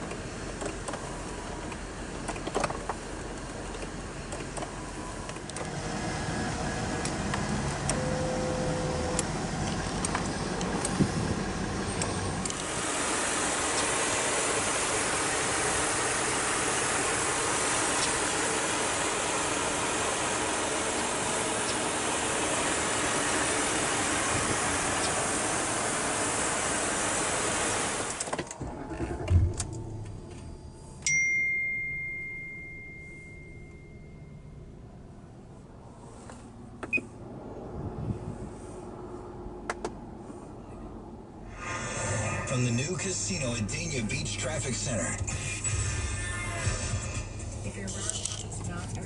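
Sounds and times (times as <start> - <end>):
car engine idling: 0.0 - 31.1, 41.5 - 49.0
electronic chime: 30.3 - 34.6.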